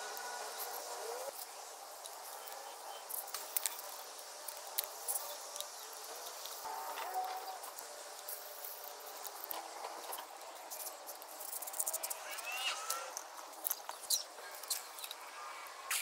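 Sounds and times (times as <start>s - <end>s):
tape pressed and torn ticks: 1.4s - 15.3s
tape squeaking off roll: 6.6s - 7.6s, 9.5s - 13.2s.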